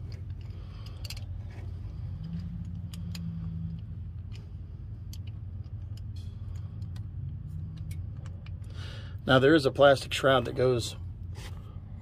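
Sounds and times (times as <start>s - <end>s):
steady low hum: 0.0s - 12.0s
light metal clicks and taps: 2.2s - 8.8s.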